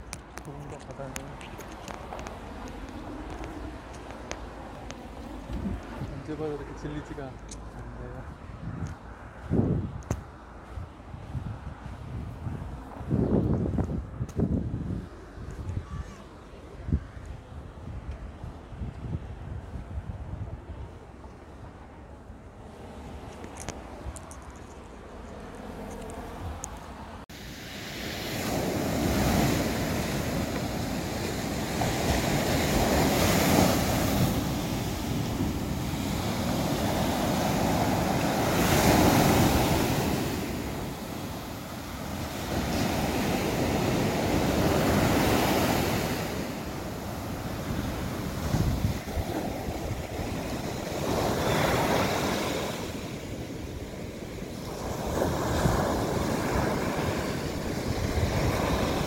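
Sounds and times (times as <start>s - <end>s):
wind on microphone: 0.0s - 6.8s, 7.4s - 59.0s
waves washing on beach: 25.8s - 59.0s.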